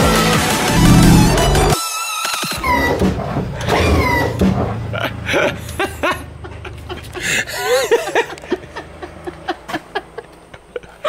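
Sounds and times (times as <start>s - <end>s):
woman giggling: 5.3s - 9.8s.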